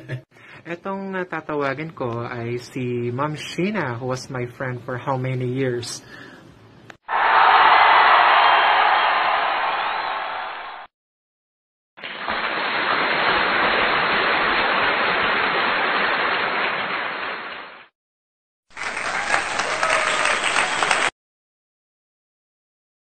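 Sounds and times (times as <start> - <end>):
burst of crowd noise: 7.1 - 10.9, 18.8 - 21.1
crowd applauding: 7.1 - 10.9, 18.7 - 21.2.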